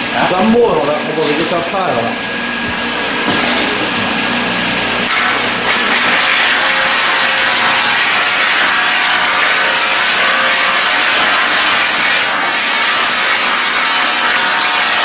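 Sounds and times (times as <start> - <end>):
machine whirring: 0.0 - 15.0.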